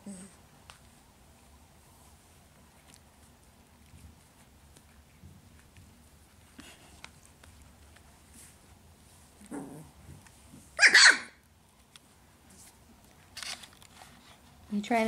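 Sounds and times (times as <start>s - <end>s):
puppy barking: 10.8s - 11.4s.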